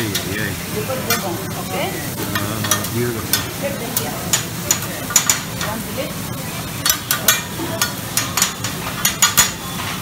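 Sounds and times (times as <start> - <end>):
food sizzling on griddle: 0.0 - 10.0
metal utensils clacking and scraping: 2.2 - 5.8, 6.7 - 10.0.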